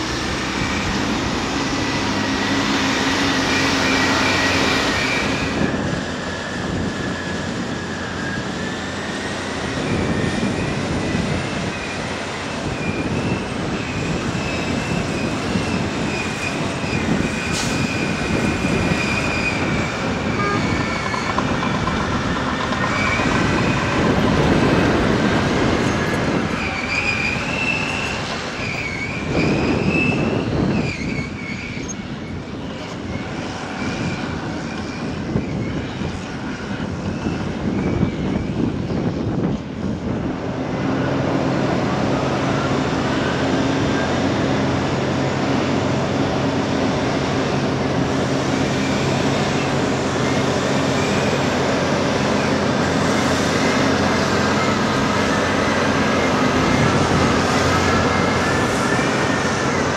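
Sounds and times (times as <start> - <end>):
diesel engines running: 0.0 - 59.9
metallic squealing: 11.5 - 32.4.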